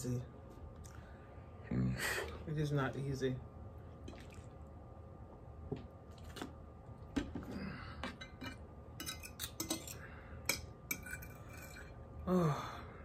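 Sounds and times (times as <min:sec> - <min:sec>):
cutlery clinking on a plate: 0:08.0 - 0:11.9.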